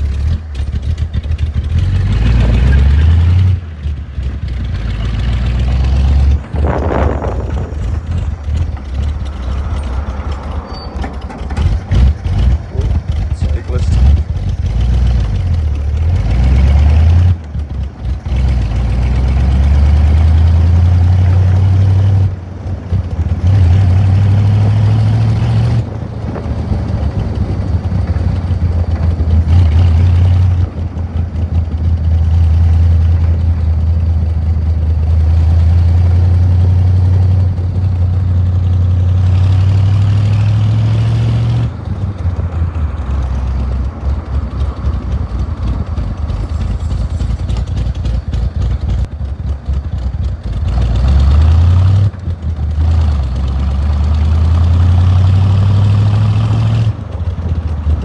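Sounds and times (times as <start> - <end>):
car engine running under load: 0.0 - 58.0.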